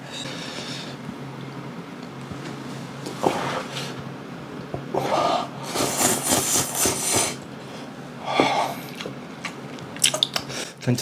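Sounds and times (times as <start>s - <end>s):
noisy breaths: 0.0s - 1.1s, 4.9s - 9.0s.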